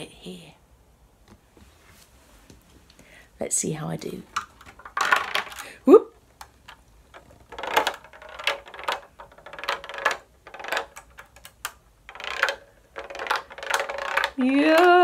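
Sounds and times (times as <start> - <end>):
ball rolling and clicking on plastic: 4.0 - 15.0.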